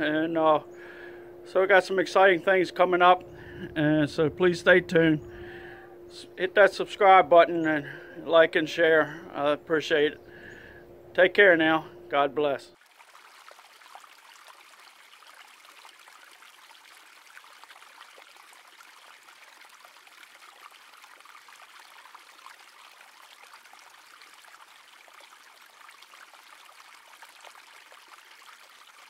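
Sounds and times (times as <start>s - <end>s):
creek babbling over stones: 12.8s - 29.0s.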